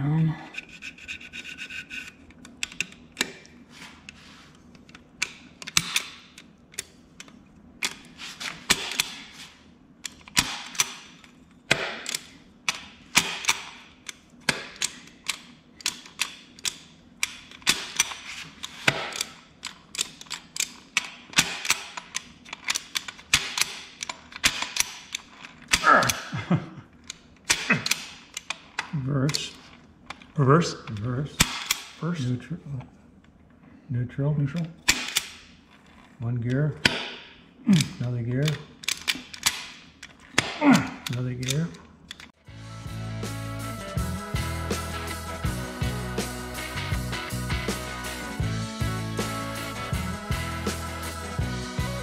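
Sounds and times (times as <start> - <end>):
short scraping strokes: 0.5 - 2.2.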